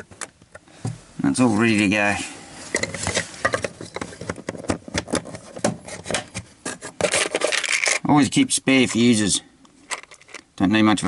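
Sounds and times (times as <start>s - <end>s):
plastic box rubbing and scraping: 2.8s - 8.0s.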